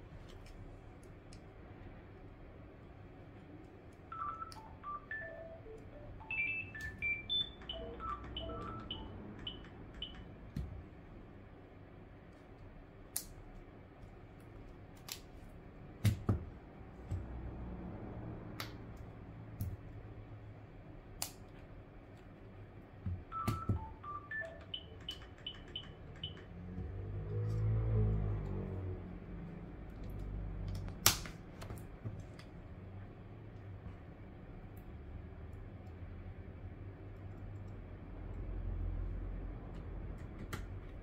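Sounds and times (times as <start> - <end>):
bell-like melody: 5.0 - 9.2.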